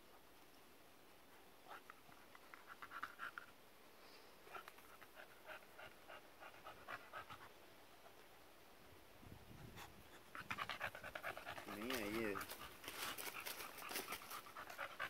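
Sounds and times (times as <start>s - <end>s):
dog panting: 4.5s - 8.3s, 9.6s - 15.0s.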